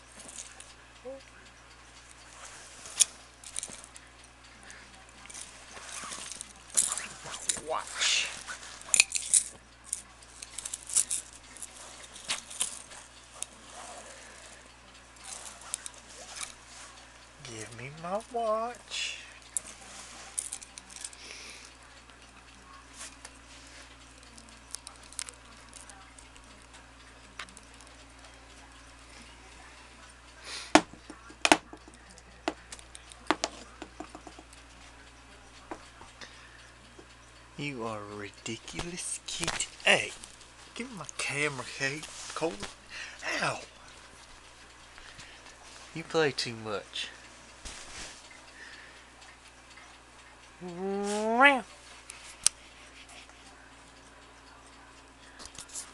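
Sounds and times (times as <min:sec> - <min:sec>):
pocket watch and chain clicking: 0:08.4 - 0:13.5.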